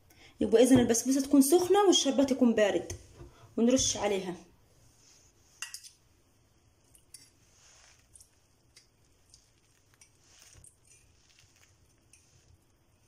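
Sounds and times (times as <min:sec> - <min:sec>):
faint trickle of syrup: 0:06.9 - 0:13.0.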